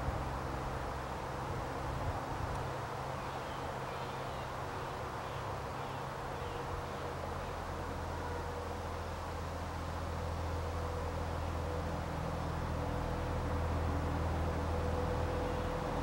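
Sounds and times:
outdoor background hiss: 0.0 - 16.0
low hum: 7.8 - 16.0.

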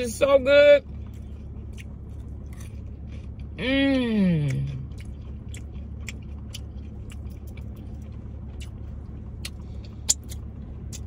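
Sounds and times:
car cabin hum: 0.0 - 11.0
person eating crawfish: 4.4 - 8.8.

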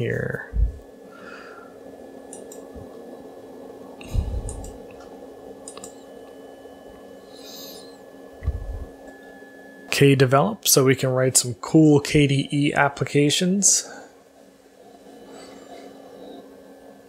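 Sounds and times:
steady low hum: 0.0 - 17.0
soft low thumps: 0.4 - 0.8, 4.0 - 4.8, 8.4 - 9.0
computer mouse clicks: 2.3 - 2.6, 4.4 - 6.0.

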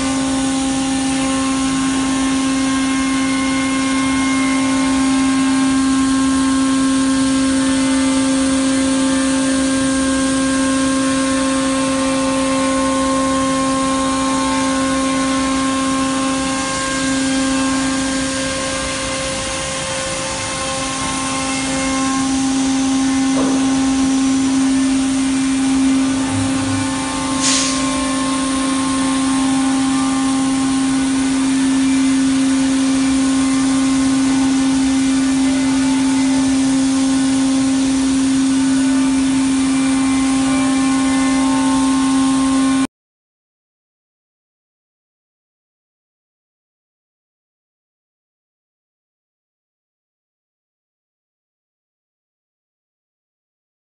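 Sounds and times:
router spindle running: 0.0 - 42.8
short sharp noise: 26.2 - 28.1.

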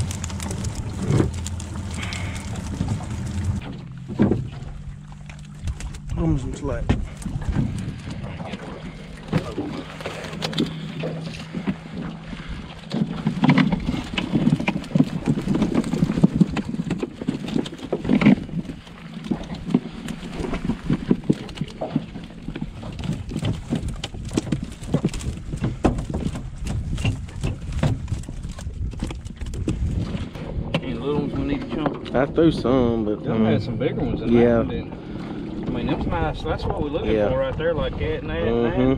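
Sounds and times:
low steady hum: 0.0 - 38.9
net and fish knocking on metal boat: 12.8 - 32.0.

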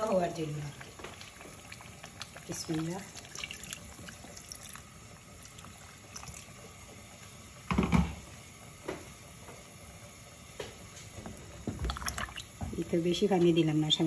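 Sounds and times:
water pouring into a pot: 0.0 - 6.8, 11.8 - 12.7
curry bubbling: 0.0 - 8.4, 11.2 - 14.0.

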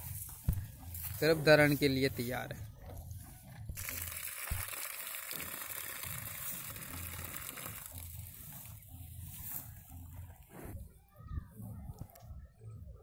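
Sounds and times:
cow urinating onto straw: 3.8 - 10.4.

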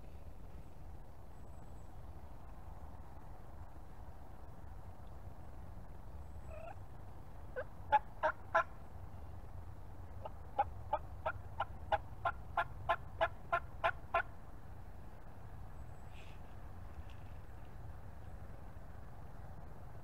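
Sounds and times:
turkey yelping: 6.5 - 6.8, 7.6 - 8.7, 10.2 - 14.3.

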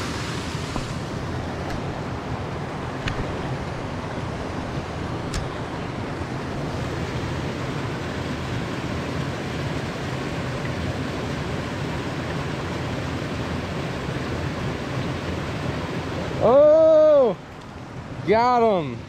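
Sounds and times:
stream spilling over rocks: 0.0 - 19.0
person shouting: 16.4 - 17.4.

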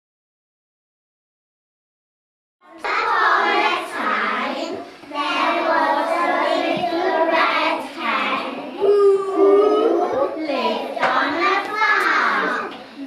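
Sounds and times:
children chanting in unison: 2.6 - 13.0.

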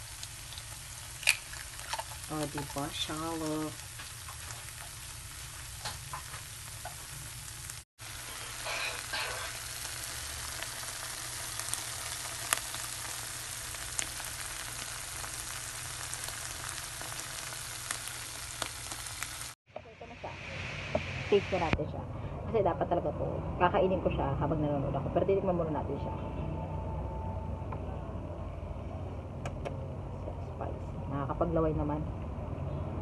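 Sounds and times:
egg sizzling in a frying pan: 0.0 - 19.6.

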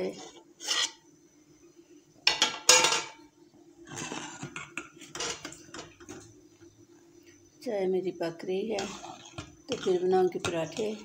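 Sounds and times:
faint steady hum: 0.0 - 11.0
spoon clinking and scraping a pot: 4.0 - 6.0, 8.8 - 11.0.

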